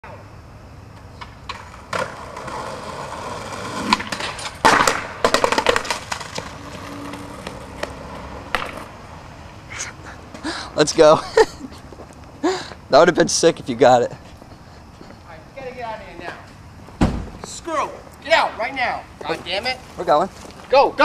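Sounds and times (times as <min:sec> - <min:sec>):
skateboard wheels rolling on concrete: 0:00.0 - 0:21.0
skateboard clattering knocks: 0:01.1 - 0:08.9
skateboard sliding on concrete ledge: 0:01.1 - 0:09.4
skateboard slam: 0:01.2 - 0:09.0, 0:17.0 - 0:17.4.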